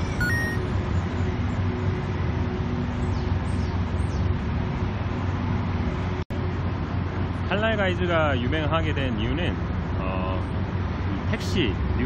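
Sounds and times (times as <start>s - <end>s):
traffic rumble: 0.0s - 12.0s
faint high squeaks: 0.1s - 0.6s.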